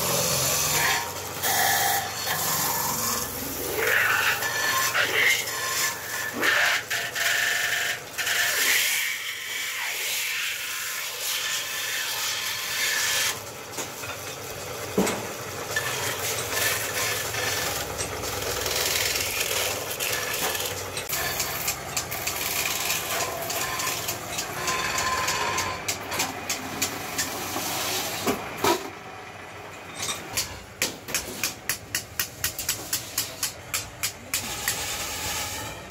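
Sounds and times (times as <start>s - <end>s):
lathe running: 0.0s - 13.7s, 14.3s - 28.2s
tool scraping spinning metal: 0.0s - 29.0s, 29.8s - 35.9s.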